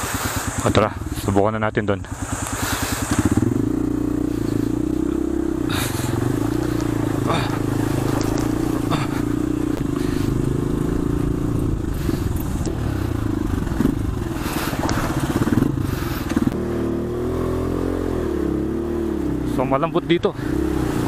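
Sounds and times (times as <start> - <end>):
motorcycle engine running: 0.0 - 21.0
knocks and scrapes: 5.7 - 10.3, 11.6 - 16.6.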